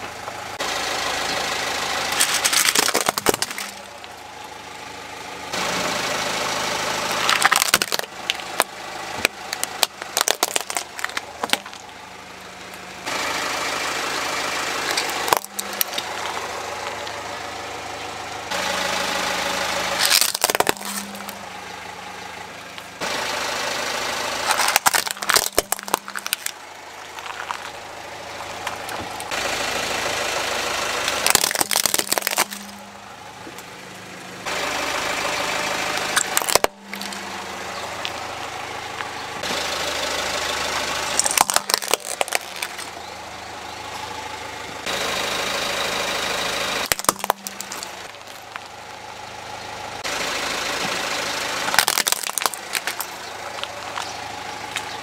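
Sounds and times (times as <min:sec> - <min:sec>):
car engine idling: 0:00.0 - 0:55.0
plastic cracking and snapping: 0:02.2 - 0:03.9, 0:07.2 - 0:11.8, 0:20.0 - 0:21.4, 0:24.5 - 0:26.6, 0:31.1 - 0:32.8, 0:36.2 - 0:37.2, 0:41.2 - 0:42.9, 0:46.8 - 0:48.7, 0:51.7 - 0:54.1.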